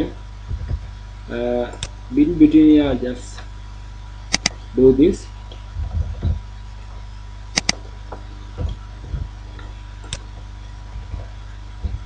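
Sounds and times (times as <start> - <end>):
low steady hum: 0.0 - 12.0
keyboard and mouse clicks: 4.3 - 4.6, 7.6 - 7.8.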